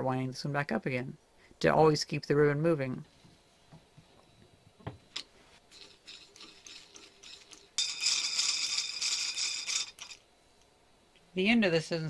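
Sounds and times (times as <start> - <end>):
spool rattling whir: 5.7 - 10.2.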